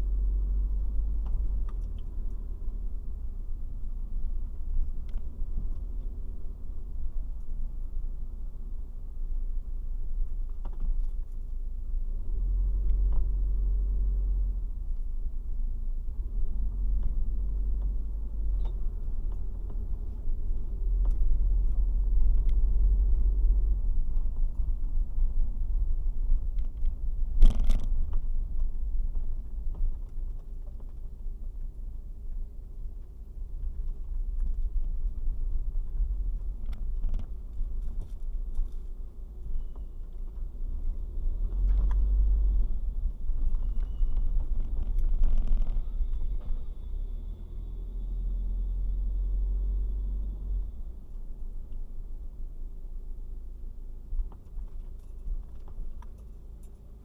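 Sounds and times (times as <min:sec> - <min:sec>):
car engine and road rumble: 0:00.0 - 0:57.0.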